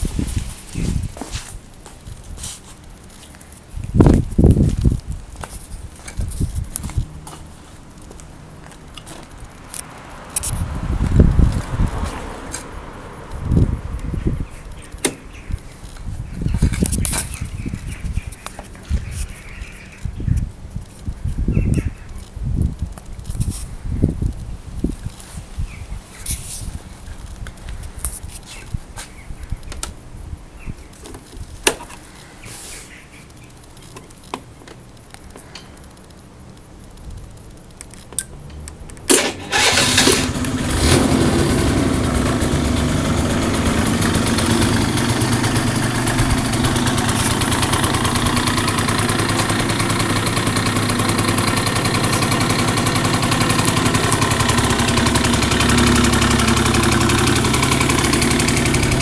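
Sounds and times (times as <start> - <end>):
scooter engine starting and idling: 39.1 - 59.0.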